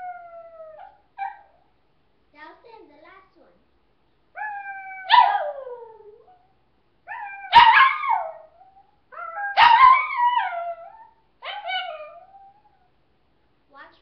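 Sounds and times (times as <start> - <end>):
dog howling: 0.0 - 1.5, 4.4 - 6.5, 7.1 - 12.9.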